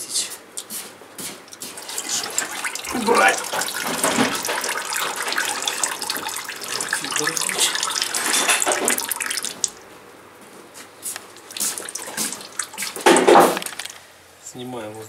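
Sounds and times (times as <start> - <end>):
oil pouring into container: 1.6 - 9.8, 11.1 - 14.0.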